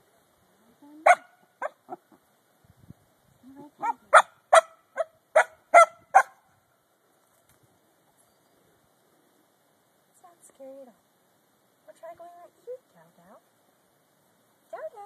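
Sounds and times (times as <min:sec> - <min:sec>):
puppy barking sharply: 0:01.1 - 0:02.0, 0:03.8 - 0:06.4.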